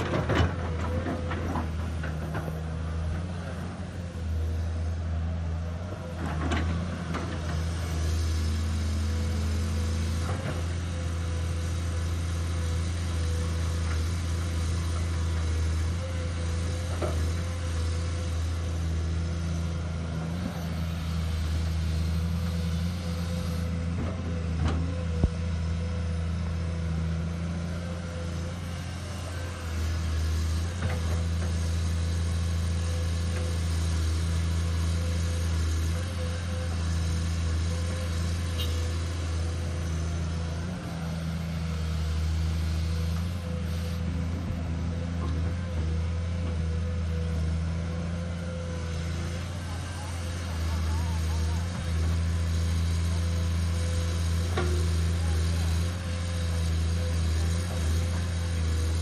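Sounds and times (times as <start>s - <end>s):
engine whine: 0.0s - 31.7s
excavator diesel engine running: 0.0s - 59.0s.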